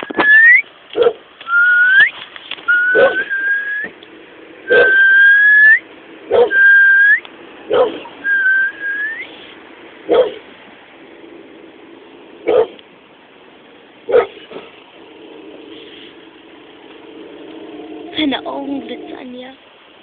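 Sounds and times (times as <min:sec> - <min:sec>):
dog barking: 0:01.0 - 0:01.2, 0:02.9 - 0:03.3, 0:04.7 - 0:05.0, 0:06.3 - 0:06.7, 0:07.7 - 0:08.1, 0:10.1 - 0:10.4, 0:12.4 - 0:12.8, 0:14.1 - 0:14.7
dog whining: 0:02.7 - 0:04.0, 0:04.6 - 0:09.3.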